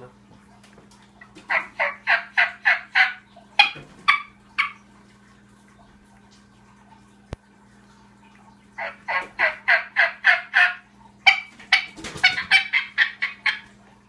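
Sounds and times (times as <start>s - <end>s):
turkey call yelps: 1.5s - 4.8s, 8.8s - 13.7s.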